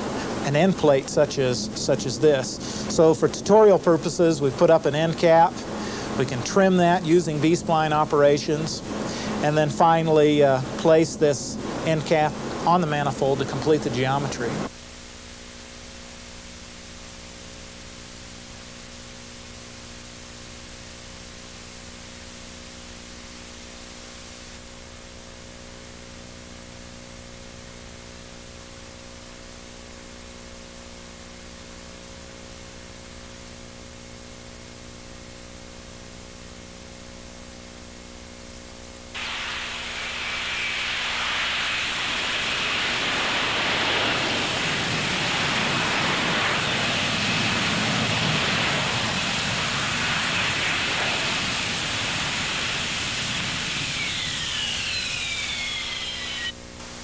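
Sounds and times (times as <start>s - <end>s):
jet aircraft rushing noise: 0.0s - 14.7s, 39.2s - 56.7s
electrical hum with low tones: 0.0s - 57.0s
tape hiss: 0.0s - 57.0s.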